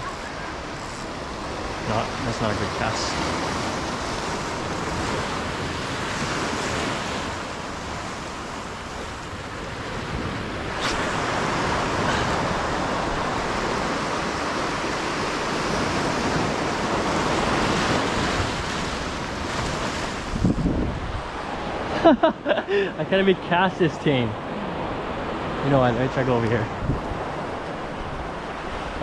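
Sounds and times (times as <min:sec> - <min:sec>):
wind on microphone: 0:03.3 - 0:21.9, 0:26.6 - 0:29.0.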